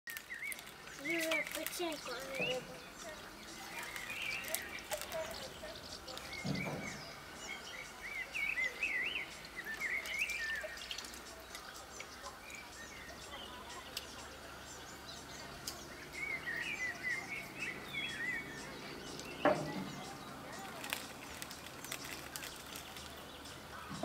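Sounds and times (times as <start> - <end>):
water splashing and dripping: 0.1 - 7.3, 8.6 - 12.7
small birds chirping: 0.1 - 24.0.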